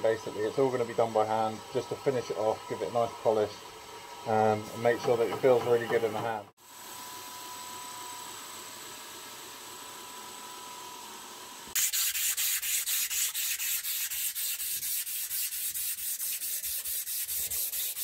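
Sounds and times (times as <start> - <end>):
abrasive paper sanding: 11.8 - 18.0.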